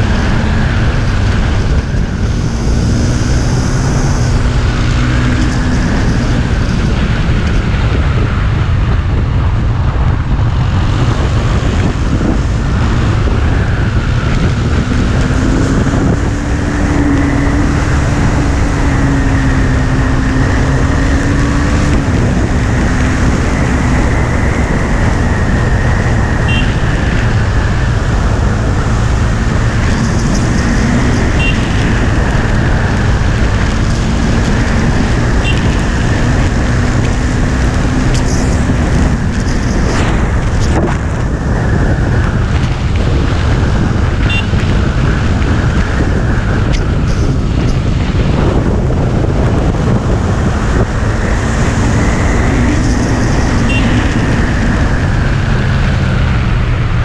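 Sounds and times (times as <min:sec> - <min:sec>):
motorcycle engine running: 0:00.0 - 0:57.0
wind buffeting microphone: 0:00.0 - 0:57.0.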